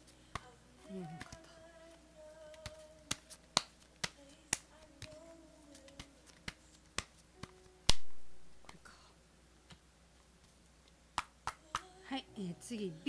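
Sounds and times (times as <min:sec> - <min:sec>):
cards being shuffled: 0:00.3 - 0:08.8
card slap: 0:05.8 - 0:08.3.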